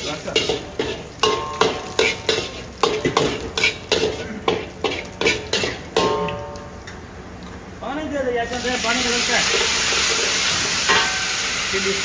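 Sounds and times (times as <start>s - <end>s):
metal ladle scraping a wok: 0.0s - 6.3s, 9.4s - 11.5s
oil sizzling in a wok: 0.0s - 6.8s, 8.4s - 12.0s.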